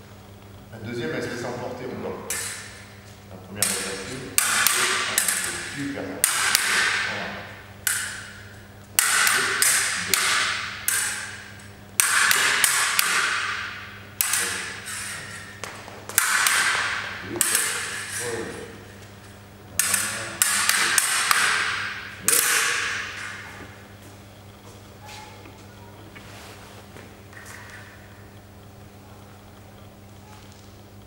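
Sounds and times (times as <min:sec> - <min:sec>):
sabre blades clashing: 0:02.3 - 0:02.8, 0:03.6 - 0:23.8.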